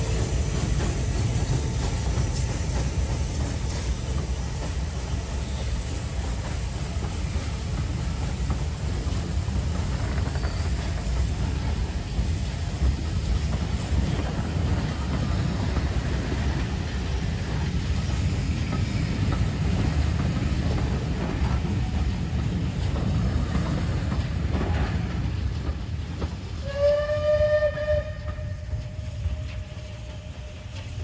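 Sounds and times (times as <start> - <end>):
wheels clacking over rail joints: 0.0 - 26.6
train coaches rumbling past: 0.0 - 31.0
steam locomotive whistle: 26.6 - 31.0.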